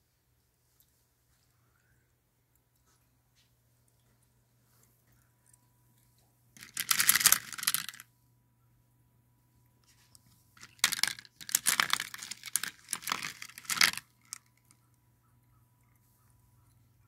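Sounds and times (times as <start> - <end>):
glass marbles clacking: 6.6 - 8.0.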